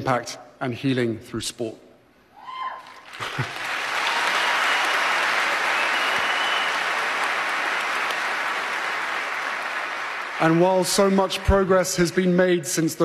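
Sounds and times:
large audience applauding: 2.8 - 11.7.

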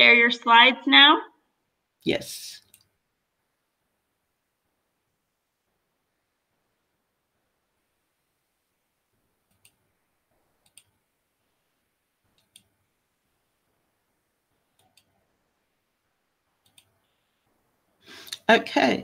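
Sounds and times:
computer mouse clicks: 2.6 - 2.9, 9.4 - 9.9, 10.6 - 11.0, 12.3 - 12.8, 14.7 - 15.2, 16.6 - 17.1.

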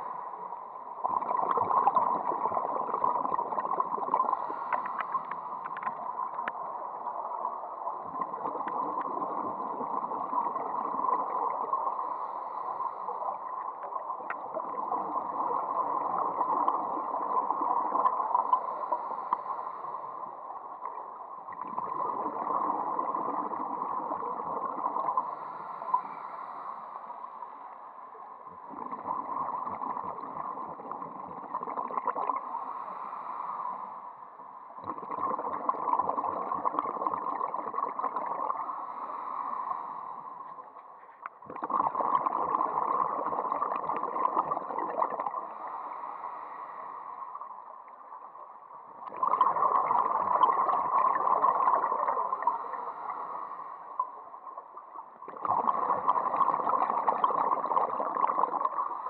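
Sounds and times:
muffled underwater rushing gurgle: 0.0 - 59.0
faint clicks: 4.6 - 6.6, 13.8 - 14.5, 19.2 - 19.6, 40.4 - 41.4.

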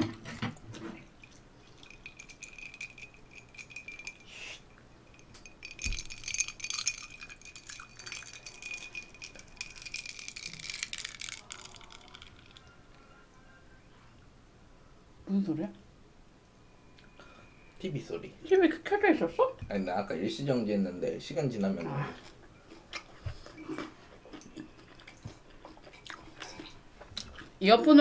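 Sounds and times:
cola fizzing in a glass: 0.9 - 12.8.

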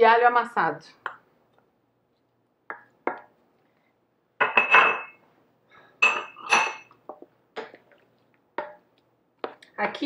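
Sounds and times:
utensils clattering on steel pot: 6.0 - 7.0.

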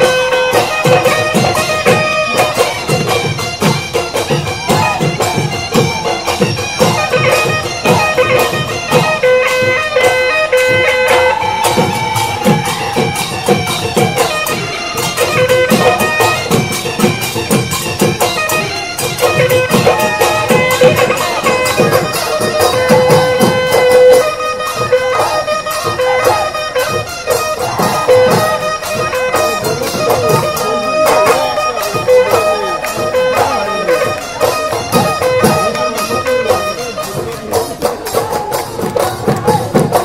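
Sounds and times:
drums quick steady beat: 0.0 - 40.0
reedy wind instrument melody: 0.0 - 40.0.

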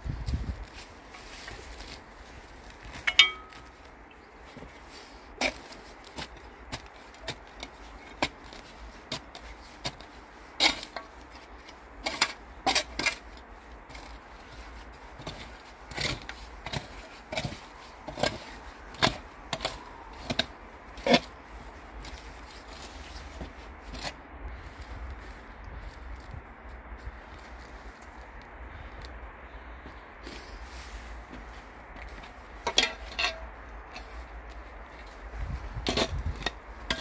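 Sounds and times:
metal trowel scraping soil: 4.9 - 14.2, 15.2 - 21.4, 32.0 - 34.3, 34.9 - 37.0.

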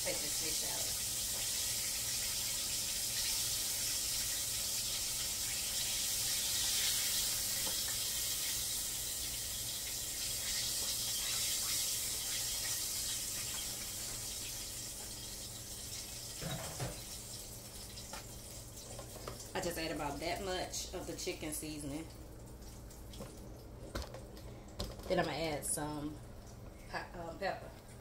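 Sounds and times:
fish deep-frying in oil: 0.0 - 19.5.

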